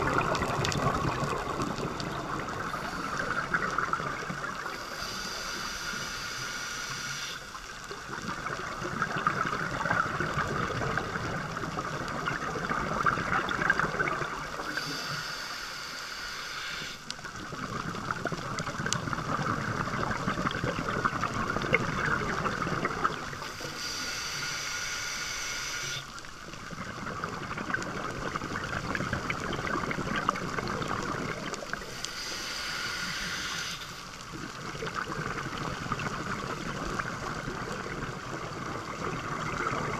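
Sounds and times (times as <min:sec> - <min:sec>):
bubbling exhales underwater: 0:00.0 - 0:05.4, 0:08.2 - 0:15.0, 0:17.4 - 0:23.4, 0:26.7 - 0:32.0, 0:34.3 - 0:39.9
regulator hiss on inhale: 0:02.0 - 0:08.0, 0:14.5 - 0:17.3, 0:23.3 - 0:26.3, 0:30.6 - 0:34.5.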